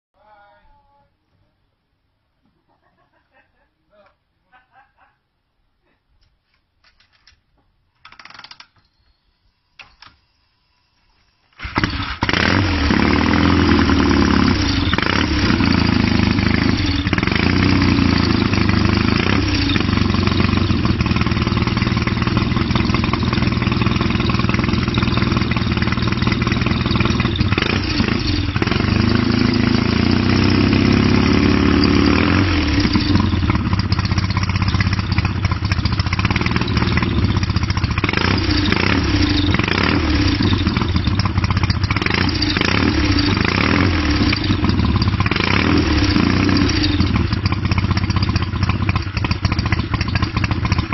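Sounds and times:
motorcycle engine idling and revving: 0:11.6 - 0:50.9.

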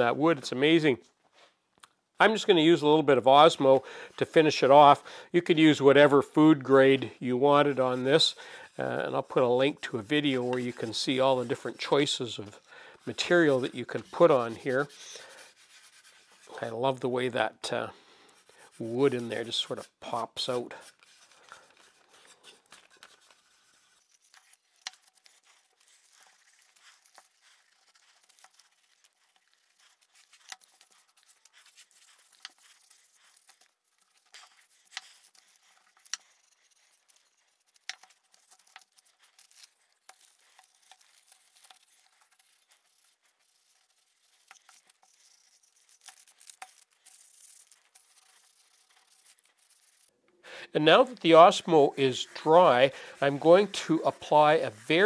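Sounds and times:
newspaper crinkling: 0:02.2 - 0:55.0
cloth rubbing on wood: 0:07.5 - 0:16.8, 0:50.8 - 0:55.0.

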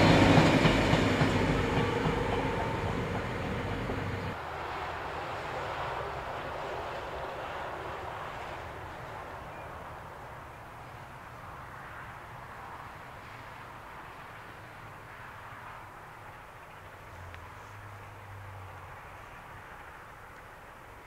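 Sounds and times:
train carriages rumbling on rails: 0:00.0 - 0:10.6.

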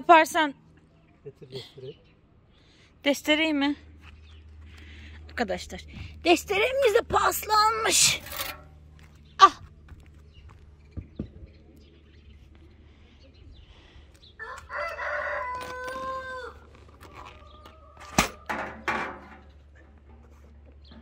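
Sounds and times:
rooster crowing: 0:14.4 - 0:18.2.

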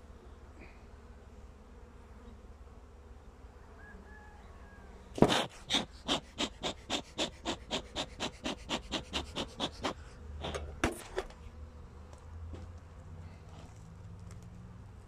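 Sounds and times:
bees humming: 0:00.0 - 0:10.8
bellows puffing: 0:05.2 - 0:10.8.

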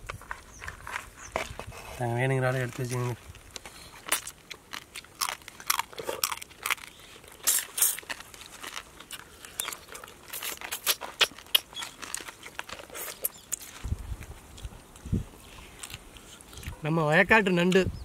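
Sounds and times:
crab shells cracking: 0:03.3 - 0:13.9.

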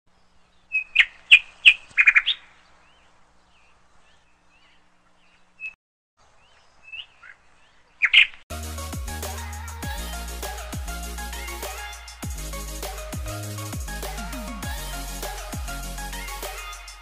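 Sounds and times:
birds chirping: 0:00.1 - 0:08.4.

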